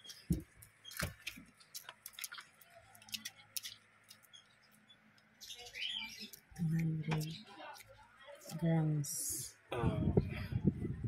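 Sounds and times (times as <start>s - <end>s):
claws clicking and scratching plastic: 0.0s - 5.3s.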